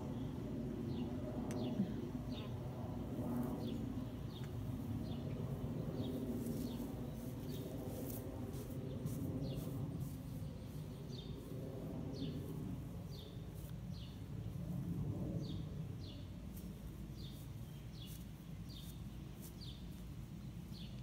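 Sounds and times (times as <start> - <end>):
low steady rumble: 0.0 - 21.0
bird chirping: 15.4 - 21.0.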